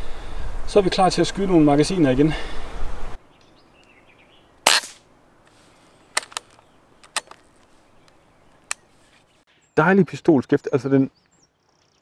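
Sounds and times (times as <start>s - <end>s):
air rifle shot: 4.6s - 5.0s
rifle bolt metallic clicks: 6.2s - 7.4s.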